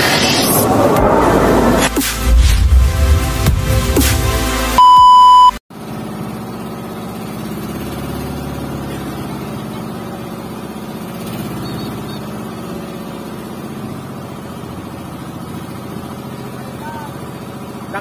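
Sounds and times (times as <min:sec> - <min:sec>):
boat engine running: 0:05.8 - 0:18.0.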